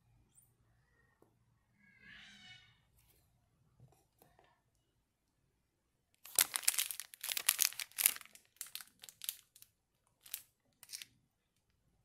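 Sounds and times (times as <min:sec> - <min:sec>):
plastic piping bag crinkling: 0:06.2 - 0:11.1.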